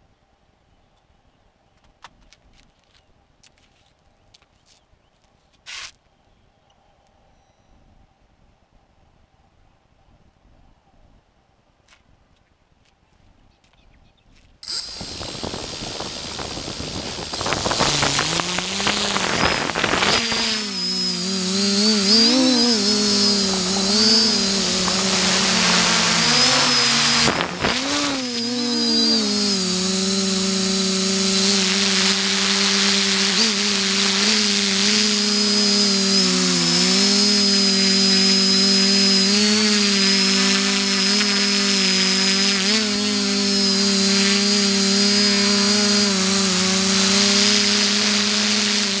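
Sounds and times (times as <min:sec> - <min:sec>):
drone propellers buzzing: 0:14.6 - 0:49.0.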